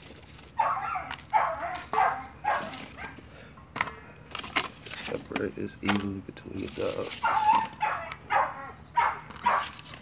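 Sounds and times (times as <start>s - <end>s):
dog barking and whining: 0.5s - 3.2s, 7.2s - 9.8s.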